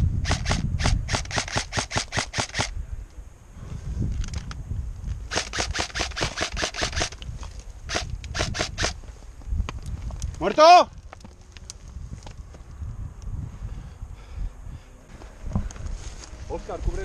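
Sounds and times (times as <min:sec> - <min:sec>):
airsoft rifle rapid shots: 0:00.2 - 0:02.7, 0:05.3 - 0:07.2, 0:07.9 - 0:09.0.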